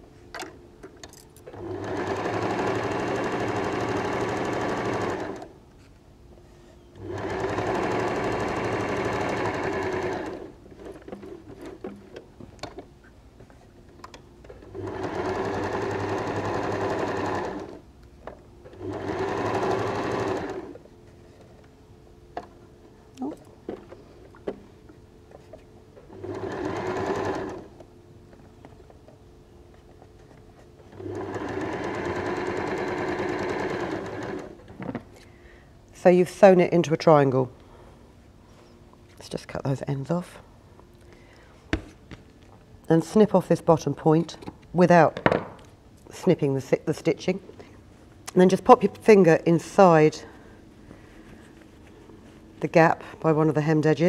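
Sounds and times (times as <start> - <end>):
sewing machine stitching: 1.5 - 5.5, 7.0 - 11.8, 14.5 - 17.8, 18.7 - 20.8, 26.1 - 27.8, 30.9 - 34.7.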